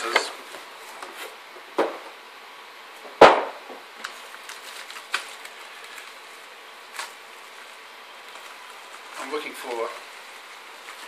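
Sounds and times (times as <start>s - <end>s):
bubble bag rustling: 4.0s - 11.0s.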